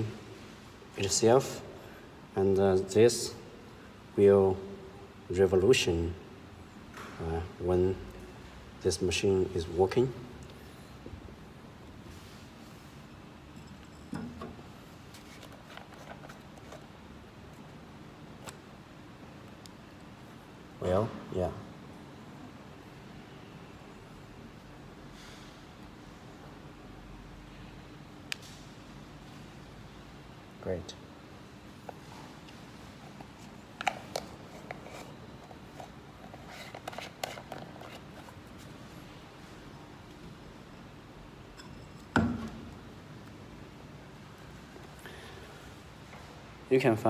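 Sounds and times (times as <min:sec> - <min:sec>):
faint room noise: 0:00.0 - 0:47.0
light clicks and rustles of handling: 0:13.6 - 0:17.7.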